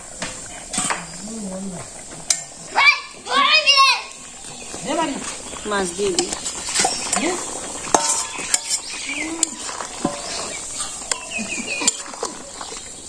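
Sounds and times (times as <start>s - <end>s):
curry simmering: 0.0s - 13.0s
birds chirping: 0.4s - 13.0s
spatula clinking and scraping metal pot: 4.6s - 13.0s.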